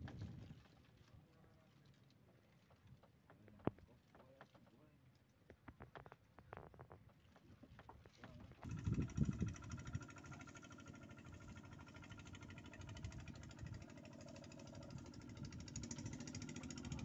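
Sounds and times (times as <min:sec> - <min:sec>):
small engine running: 0:08.6 - 0:17.0.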